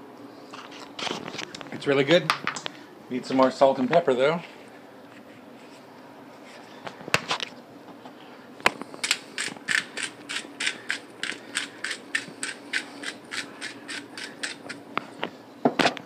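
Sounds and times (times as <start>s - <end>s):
faint steady hum: 0.0s - 16.0s
pepper mill grinding clicks: 9.0s - 14.8s.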